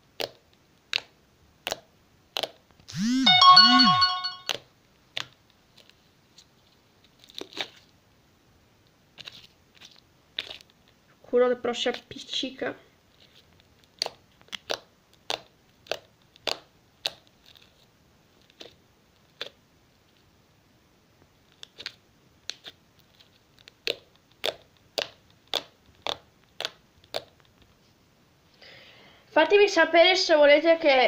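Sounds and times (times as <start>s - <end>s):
slime squeezed popping: 23.8s - 27.4s.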